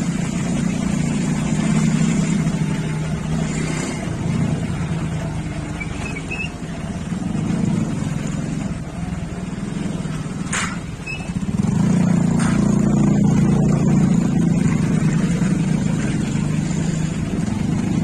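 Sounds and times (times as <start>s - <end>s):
small motorcycle engine running: 11.1s - 18.0s.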